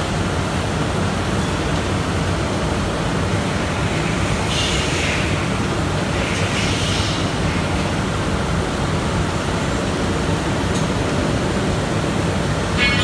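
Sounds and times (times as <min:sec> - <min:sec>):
high-pitched squeal: 0:12.8 - 0:13.0.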